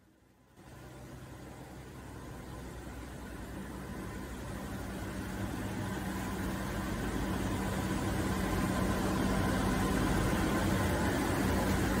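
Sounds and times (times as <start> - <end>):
machinery hum: 0.0 - 12.0.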